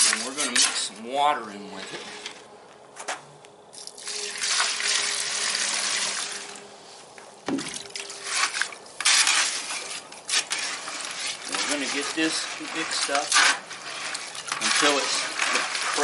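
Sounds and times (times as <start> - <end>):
tool scraping in bucket: 0.0 - 1.0, 1.6 - 2.4, 8.0 - 16.0
water splashing into bucket: 3.8 - 6.6, 7.5 - 16.0.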